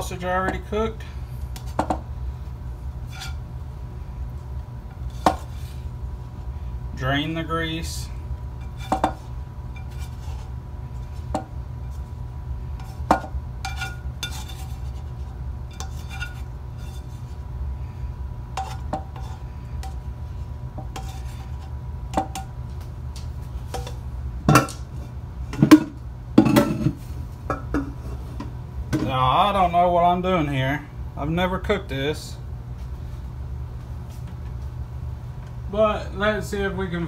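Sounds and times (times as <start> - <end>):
spatula scraping a frying pan: 3.0 - 3.4, 8.6 - 10.6, 12.8 - 17.4, 18.5 - 20.0, 20.8 - 21.8.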